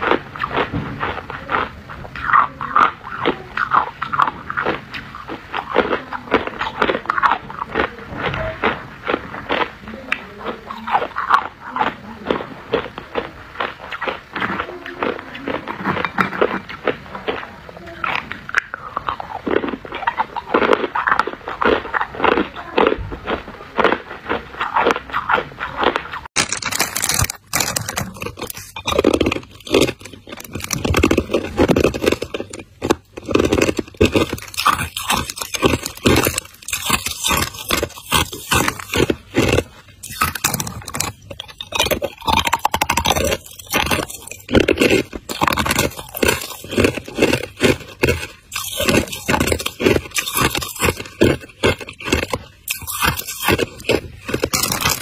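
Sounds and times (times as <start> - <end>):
ice crunching: 18.1 - 55.0.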